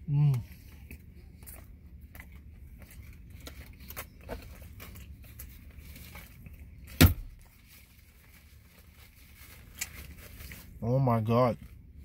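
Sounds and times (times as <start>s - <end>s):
person chewing food: 0.0s - 6.9s
paper wrapper crinkling: 7.5s - 10.8s.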